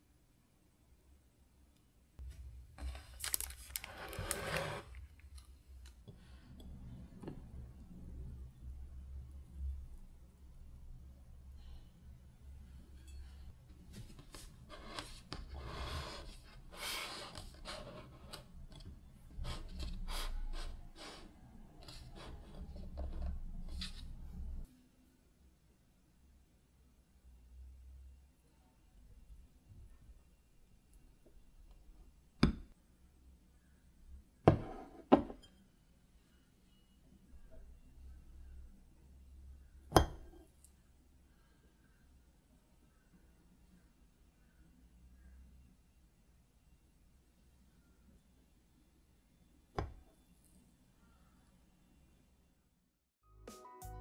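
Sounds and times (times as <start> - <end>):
ceramic plate rubbing on table: 4.4 - 4.8, 14.3 - 18.4.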